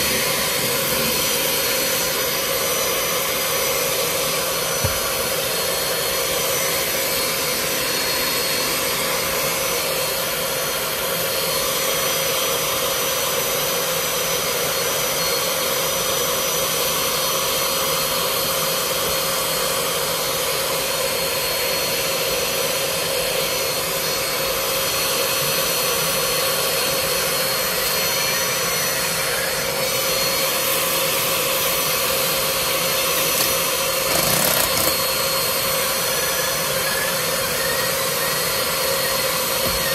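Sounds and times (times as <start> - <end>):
vacuum motor whining: 0.0 - 39.9.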